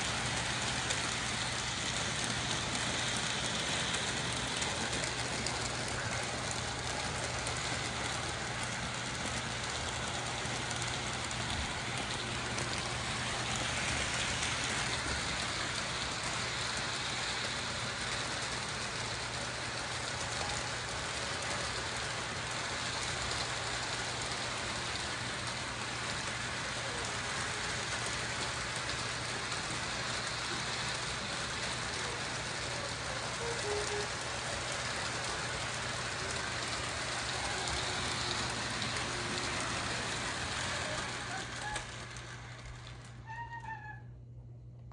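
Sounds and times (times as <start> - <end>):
model train wheels rumbling: 0.0 - 44.0.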